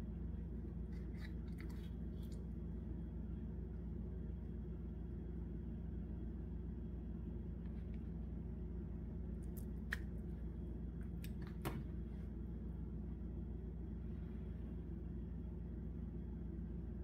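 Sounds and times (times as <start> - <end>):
steady low hum: 0.0 - 17.0
mayonnaise squishing onto salad: 0.8 - 2.5.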